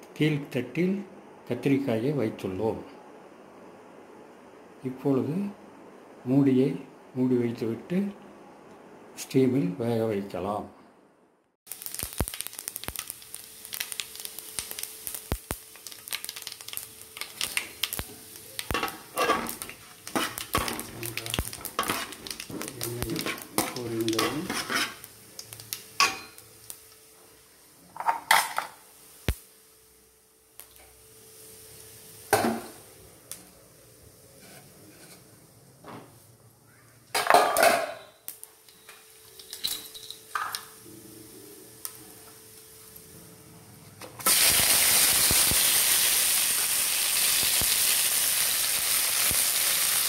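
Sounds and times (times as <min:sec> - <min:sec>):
seeds crackling in hot oil: 0:11.7 - 0:27.1, 0:28.9 - 0:35.1, 0:41.6 - 0:43.1, 0:44.2 - 0:50.0
spatula scraping metal pan: 0:24.2 - 0:25.0.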